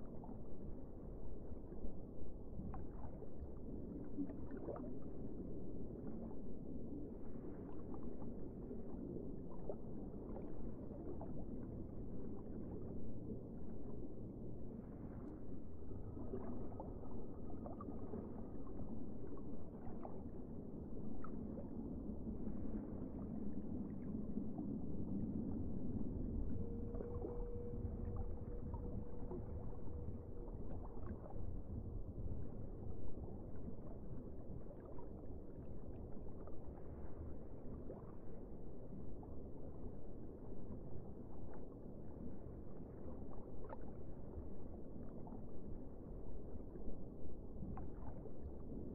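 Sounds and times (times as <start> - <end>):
faint steady tone: 0.0 - 48.9
faint underwater clicks: 0.0 - 48.9
underwater rumble of moving water: 0.0 - 48.9.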